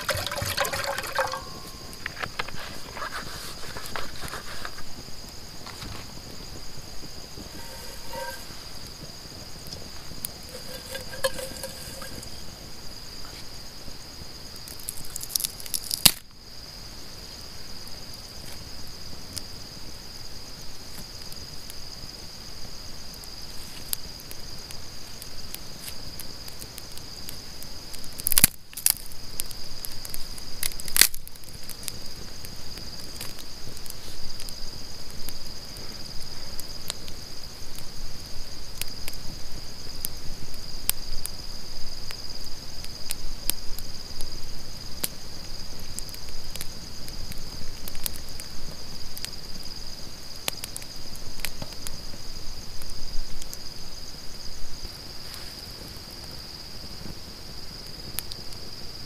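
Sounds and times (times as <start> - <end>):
campfire crackling and popping: 0.0 - 13.3, 14.5 - 16.3, 23.2 - 41.4, 42.0 - 53.7
night insects chirping: 0.0 - 59.0.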